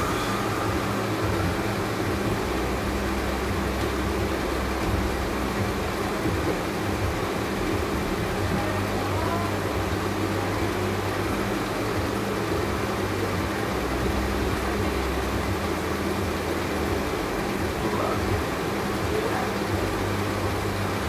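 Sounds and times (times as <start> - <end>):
steady mechanical hum: 0.0 - 21.0.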